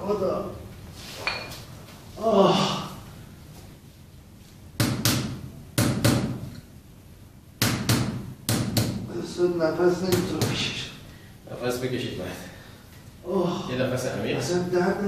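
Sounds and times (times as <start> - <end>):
person crying out: 2.2 - 3.0, 13.2 - 13.7.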